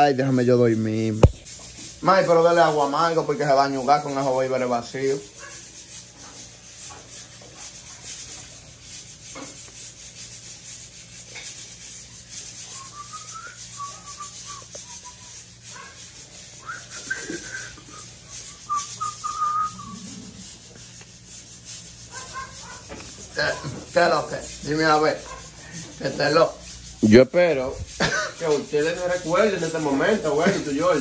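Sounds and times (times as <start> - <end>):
steady rubbing noise: 0.1 - 31.0
person whistling: 12.7 - 15.4, 16.6 - 20.1.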